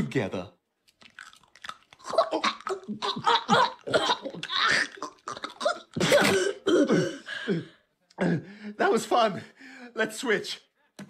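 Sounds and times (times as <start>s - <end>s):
cartoon voices choking and coughing: 2.0s - 8.4s
cartoon voices laughing: 2.1s - 6.0s.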